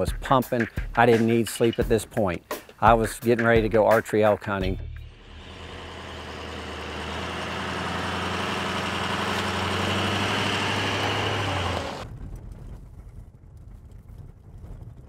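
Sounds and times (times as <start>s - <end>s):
car driving past on gravel: 5.2s - 12.0s.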